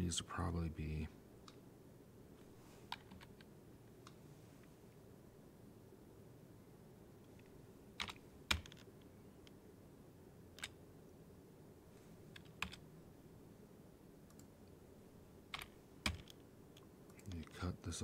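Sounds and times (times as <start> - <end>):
faint room hiss: 0.0 - 18.0
computer keyboard keystrokes: 8.0 - 8.9, 12.3 - 12.8, 15.5 - 16.4.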